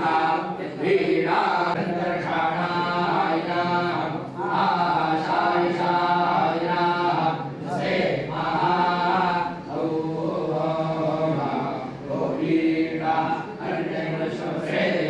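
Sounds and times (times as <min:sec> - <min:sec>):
men chanting in unison: 0:00.0 - 0:15.0.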